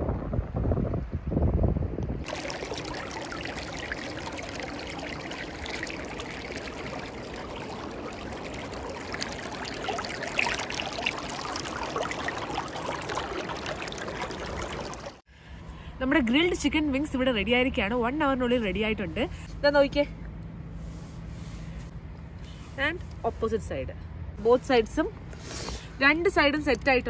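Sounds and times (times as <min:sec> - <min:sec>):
river babbling over rocks: 0:02.3 - 0:15.2.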